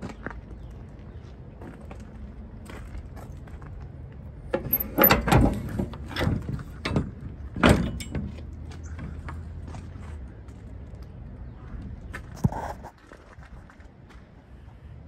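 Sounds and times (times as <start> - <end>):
metal door rattles: 4.5 - 8.5
metal door clanking and scraping: 4.5 - 8.6.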